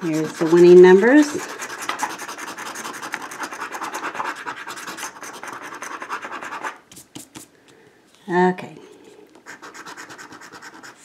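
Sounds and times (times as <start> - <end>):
coin scratching lottery ticket: 0.0 - 6.8, 9.4 - 11.0.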